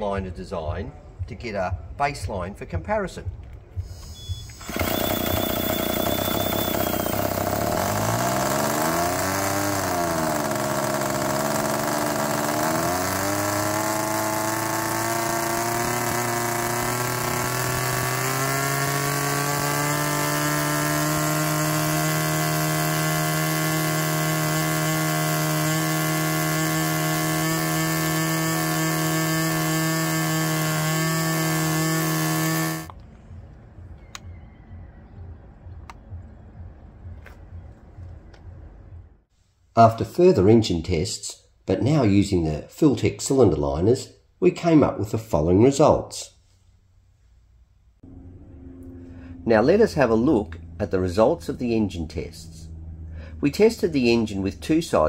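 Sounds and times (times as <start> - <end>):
model aircraft engine running: 4.5 - 32.9.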